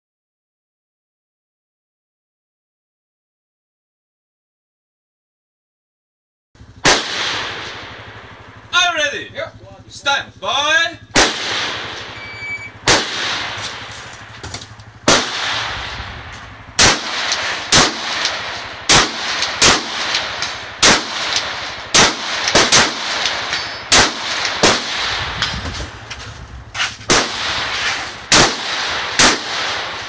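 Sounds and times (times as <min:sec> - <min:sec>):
rifle shots echoing: 0:06.8 - 0:08.8, 0:11.0 - 0:25.6, 0:27.1 - 0:30.0.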